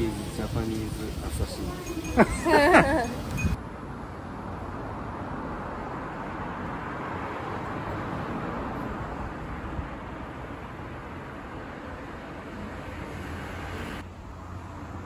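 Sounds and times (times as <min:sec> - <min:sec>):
monorail car running: 0:00.0 - 0:03.6.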